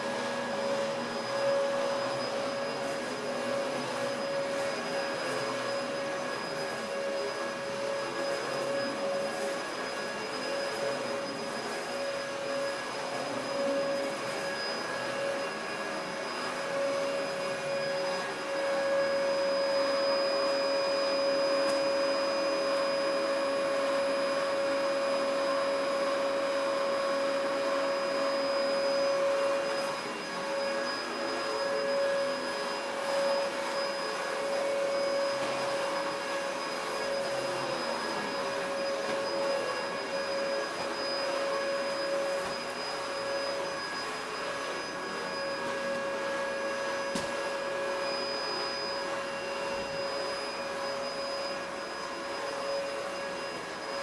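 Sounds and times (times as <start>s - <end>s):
vacuum cleaner running: 0.0s - 54.0s.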